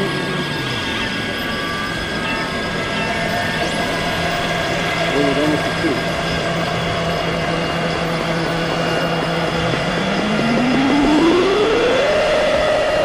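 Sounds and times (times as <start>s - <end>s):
psytrance synth drones: 0.0s - 13.0s
synth tone sliding upward: 0.0s - 13.0s.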